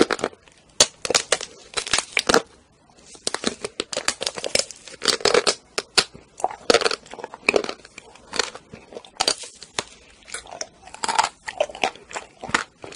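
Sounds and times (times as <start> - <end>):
chocolate shell crackling: 0.0 - 12.9
chewing: 5.8 - 12.9.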